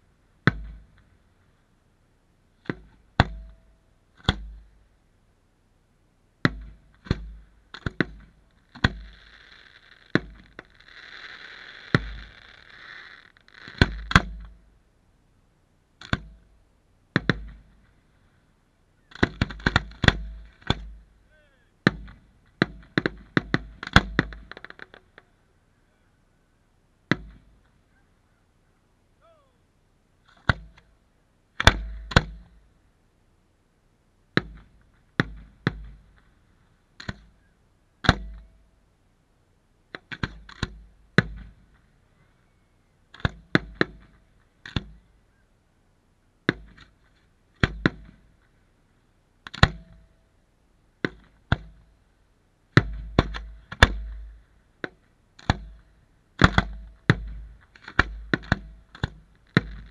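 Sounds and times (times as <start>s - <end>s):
aerial fireworks bangs: 6.5s - 14.4s.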